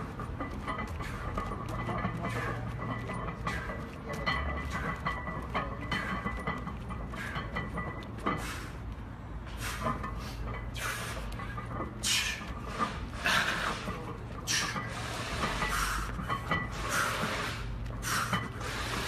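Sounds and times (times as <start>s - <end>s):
hard forceful breathing: 0.8s - 4.1s, 6.9s - 19.0s.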